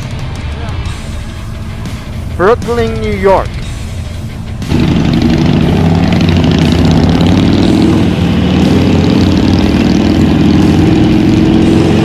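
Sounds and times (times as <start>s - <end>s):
motorcycle engines running: 0.0s - 12.0s.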